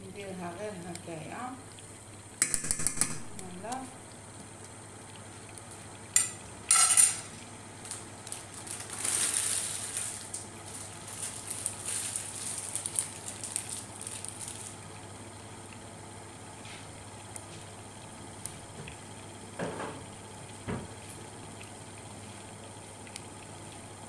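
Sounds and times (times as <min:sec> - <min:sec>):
food sizzling in hot oil: 0:05.8 - 0:15.2
metal pots and utensils clattering: 0:06.2 - 0:07.3.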